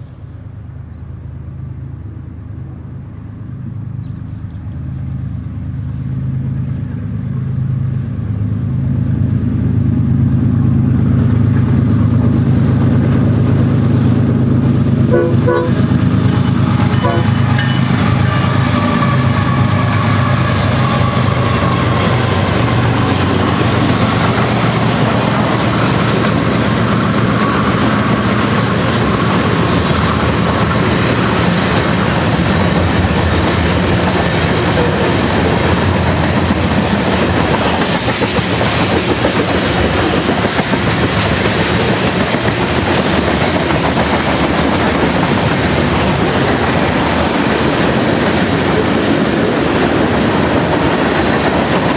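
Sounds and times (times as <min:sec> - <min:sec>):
diesel locomotive engines: 0:00.0 - 0:51.9
freight cars wheels on rails: 0:03.2 - 0:51.9.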